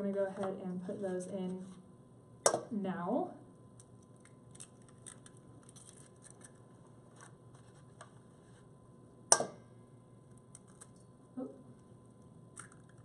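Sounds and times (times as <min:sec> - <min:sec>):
eggshell crackling: 0:03.7 - 0:08.0, 0:11.8 - 0:13.0
egg cracking on metal bowl: 0:03.8 - 0:06.7, 0:12.5 - 0:13.0.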